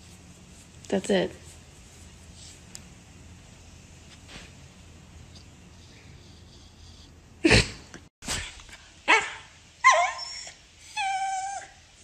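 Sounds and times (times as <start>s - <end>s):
dog yelp: 9.1s - 11.8s
dog whining: 9.1s - 12.0s.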